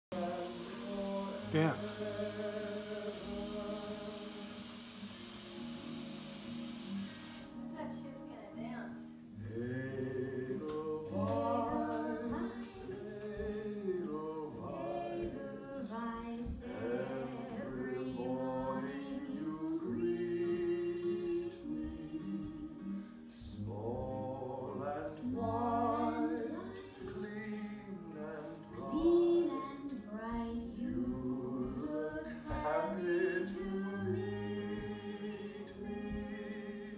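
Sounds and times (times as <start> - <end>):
woman and children singing: 0.1 - 4.6, 9.5 - 36.9
low musical accompaniment: 0.1 - 36.9.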